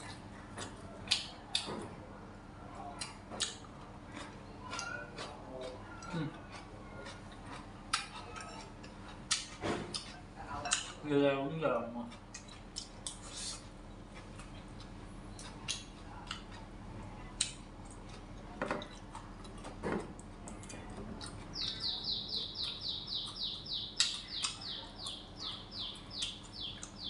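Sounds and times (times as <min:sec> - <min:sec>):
bird chirping rapidly: 0:21.5 - 0:27.0.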